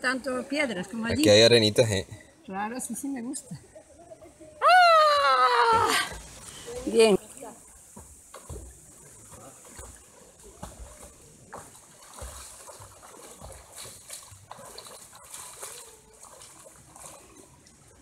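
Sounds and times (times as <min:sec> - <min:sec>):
swimming strokes splashing: 0:07.8 - 0:18.0.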